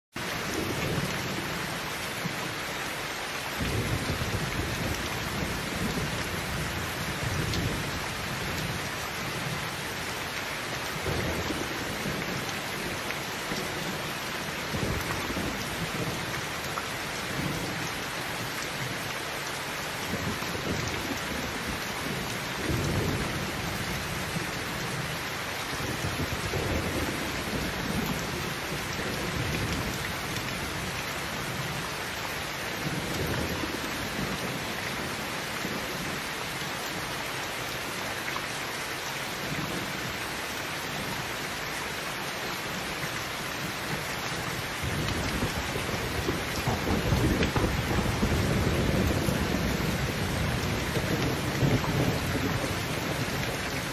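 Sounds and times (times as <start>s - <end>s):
heavy rain pouring: 0.1s - 53.9s
thunder rumbling: 44.8s - 53.9s.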